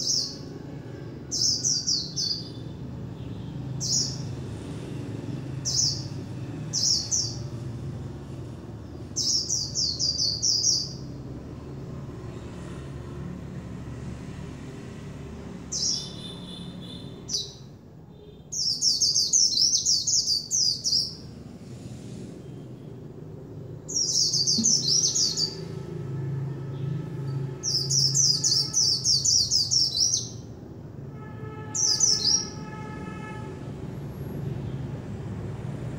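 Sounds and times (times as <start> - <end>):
bird chirping and warbling: 0.0 - 0.6, 1.3 - 4.4, 5.5 - 7.7, 8.9 - 11.7, 15.6 - 17.8, 18.5 - 21.4, 23.6 - 30.6, 31.6 - 32.8.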